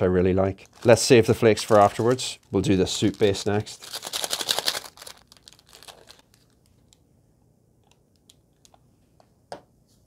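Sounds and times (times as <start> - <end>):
plastic sachet crinkling: 0.4 - 7.0.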